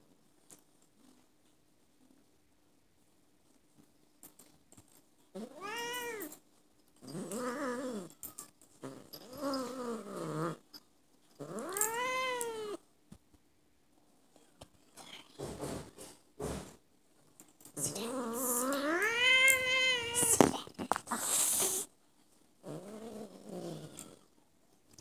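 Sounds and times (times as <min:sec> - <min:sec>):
cat meowing: 0:05.4 - 0:06.3, 0:11.6 - 0:12.8, 0:18.8 - 0:20.5.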